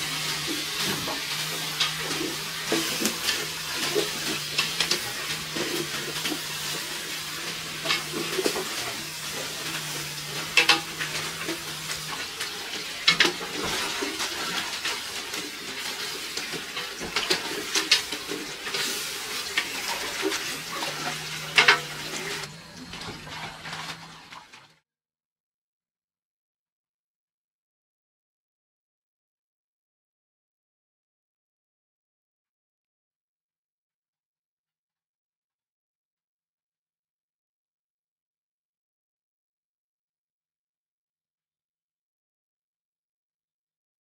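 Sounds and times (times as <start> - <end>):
utensil scraping and clinking pan: 0.0 - 22.5
food frying in a pan: 0.0 - 24.8.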